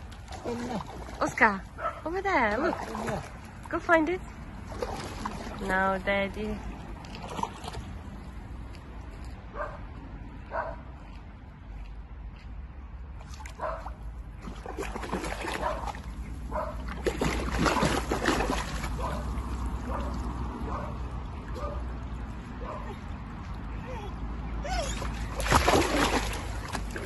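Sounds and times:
water splashing: 0.0s - 8.5s, 13.2s - 23.7s, 24.8s - 27.0s
dog barking: 9.6s - 9.8s, 10.5s - 10.8s, 13.6s - 13.9s, 15.6s - 15.9s, 16.5s - 16.8s, 19.0s - 19.3s, 19.9s - 21.0s, 21.6s - 21.9s
dog whining: 23.8s - 25.2s.

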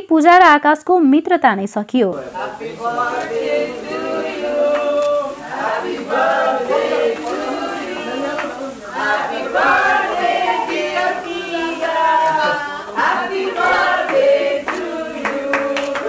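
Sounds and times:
group singing together: 2.2s - 16.0s
hand-clapping: 3.2s - 16.0s.

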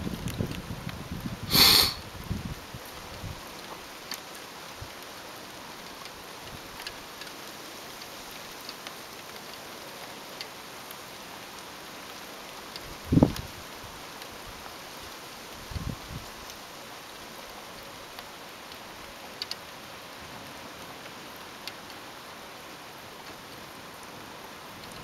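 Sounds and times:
heavy rain falling: 0.0s - 25.0s
loud burst of hiss: 1.5s - 2.0s.

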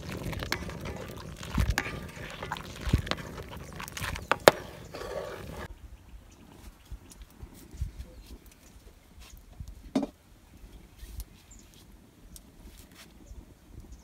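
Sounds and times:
metal ladle scraping a wok: 0.0s - 5.7s.

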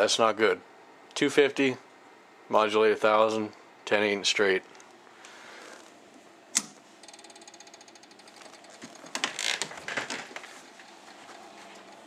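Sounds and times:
cooling fan hum: 0.0s - 12.0s
rustles and knocks: 8.2s - 12.0s.

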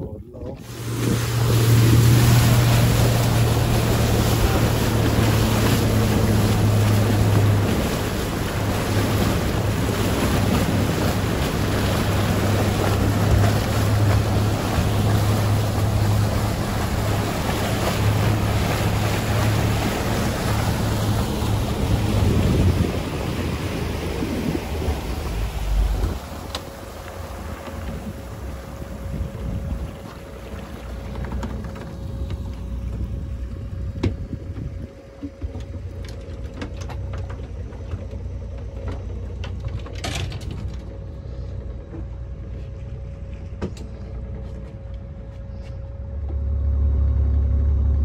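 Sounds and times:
wind buffeting microphone: 0.0s - 35.9s
water rushing past hull: 0.0s - 44.4s
outboard motor running: 0.0s - 48.0s.

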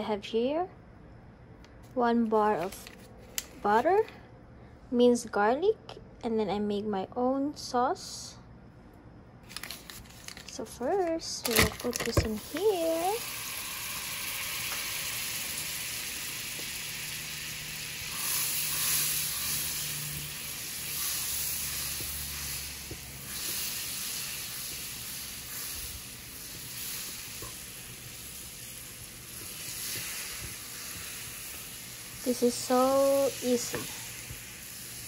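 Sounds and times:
butter sizzling in frying pan: 12.4s - 35.0s.

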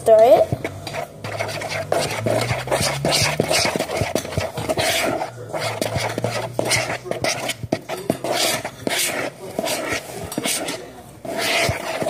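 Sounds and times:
spoon swishing through slime: 0.4s - 12.0s.

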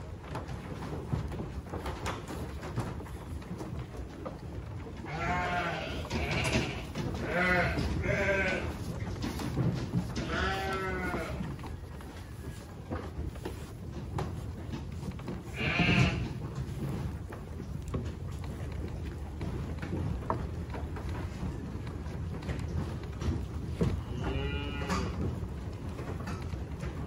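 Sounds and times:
hay rustling and chewing: 0.3s - 26.5s
sheep bleating: 5.0s - 8.8s, 10.2s - 11.5s, 15.5s - 16.4s, 24.1s - 25.2s.

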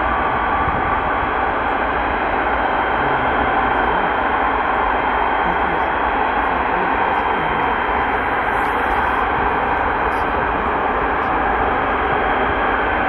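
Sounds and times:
jet engines roaring: 0.0s - 13.0s.

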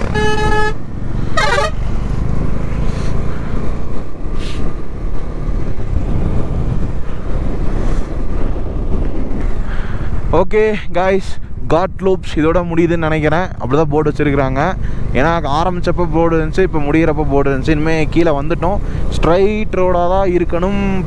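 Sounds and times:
vehicle horn toot: 0.0s - 0.8s, 1.4s - 1.8s
motorcycle engine and road rumble: 0.0s - 21.0s.

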